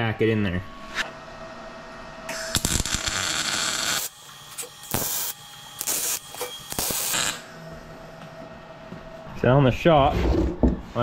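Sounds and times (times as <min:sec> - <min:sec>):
welding noise: 0:02.3 - 0:07.6.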